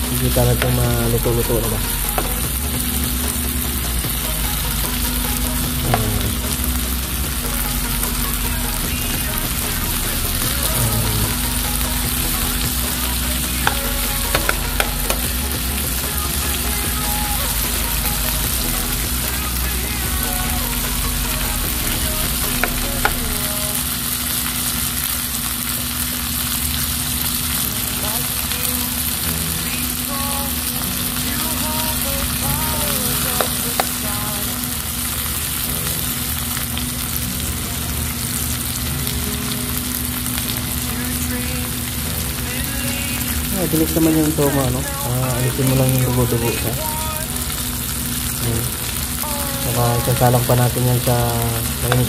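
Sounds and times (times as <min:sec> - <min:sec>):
chicken sizzling in hot oil: 0:00.0 - 0:52.0.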